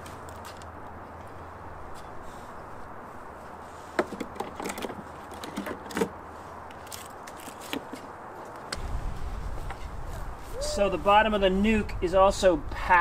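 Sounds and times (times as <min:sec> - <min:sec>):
wooden frames clicking and knocking: 0:04.0 - 0:06.2
low rumble: 0:08.8 - 0:12.8.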